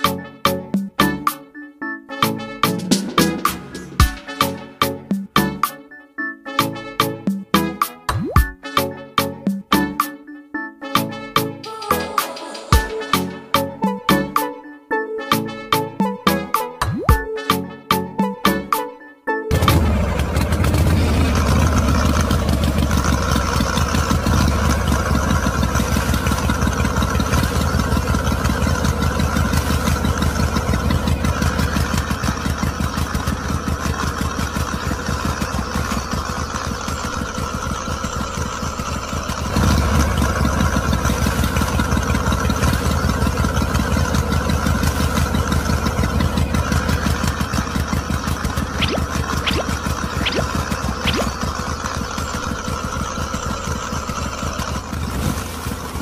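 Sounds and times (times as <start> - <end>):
small engine chugging: 19.5 - 56.0.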